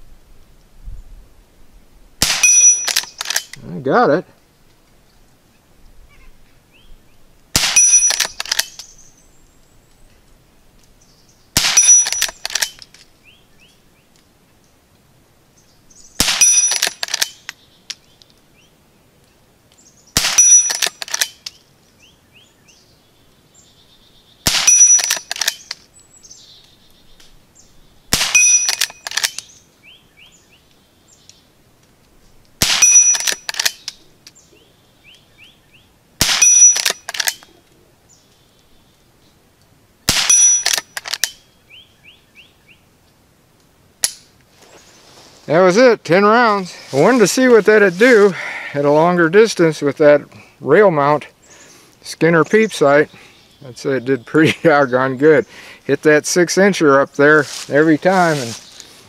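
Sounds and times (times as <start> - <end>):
rifle shots: 2.2 - 3.5, 7.5 - 8.8, 11.6 - 12.8, 16.2 - 17.4, 20.2 - 21.4, 24.4 - 25.6, 28.1 - 29.4, 32.6 - 33.8, 36.2 - 37.4, 40.1 - 41.3.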